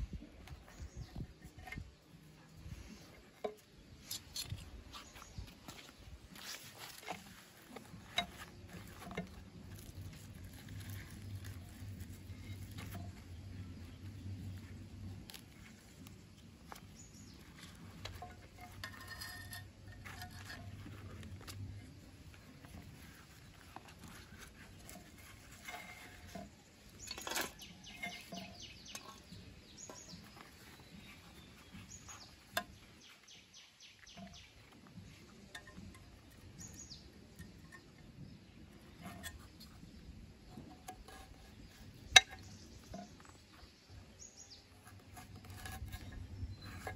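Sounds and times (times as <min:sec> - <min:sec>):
knife cutting and scraping: 0:00.5 - 0:05.7, 0:06.3 - 0:13.8, 0:14.4 - 0:33.2, 0:44.5 - 0:46.9.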